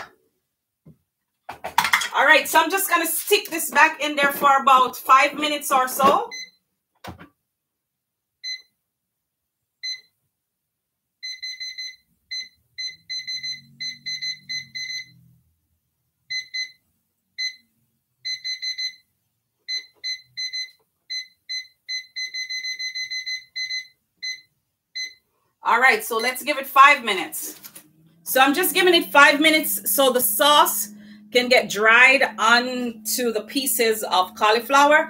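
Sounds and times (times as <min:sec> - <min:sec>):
high-pitched electronic beeps: 0:12.4 - 0:15.2.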